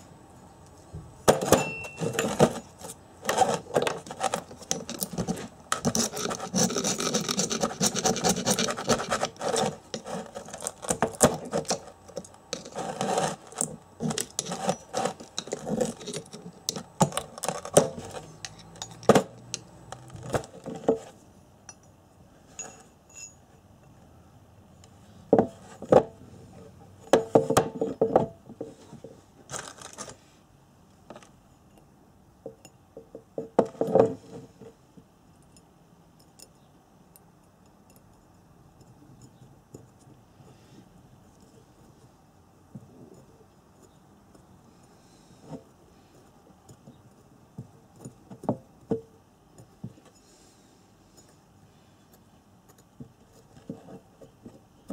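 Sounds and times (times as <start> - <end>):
steel blade scraping metal: 12.5 - 16.4.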